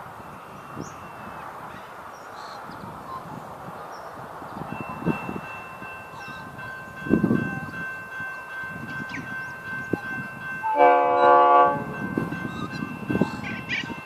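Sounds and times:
train horn blast: 10.6s - 12.2s.

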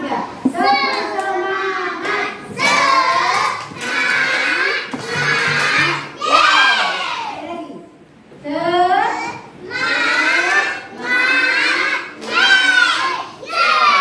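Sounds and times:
children clapping: 0.5s - 1.4s, 2.0s - 6.3s, 12.1s - 13.0s
children chanting a cheer: 0.6s - 7.4s, 9.6s - 14.0s.

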